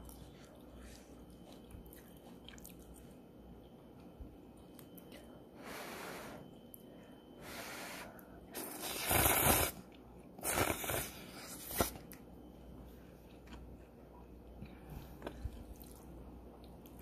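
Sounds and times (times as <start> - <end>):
noodles being slurped: 8.6 - 9.8.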